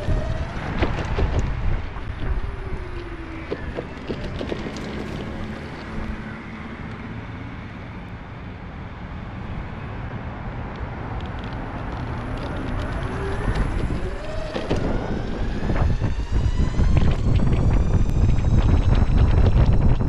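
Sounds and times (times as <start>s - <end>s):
wheels knocking on pavement cracks: 0.0s - 6.2s
wind on microphone: 0.0s - 6.4s, 10.9s - 20.0s
skateboard wheels rumbling on asphalt: 0.0s - 6.8s, 10.8s - 20.0s.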